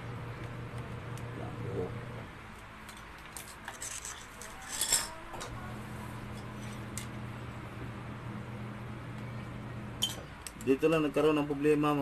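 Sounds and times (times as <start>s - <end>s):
metal parts clattering: 2.9s - 5.2s
metal parts clinking and rattling: 2.9s - 5.2s.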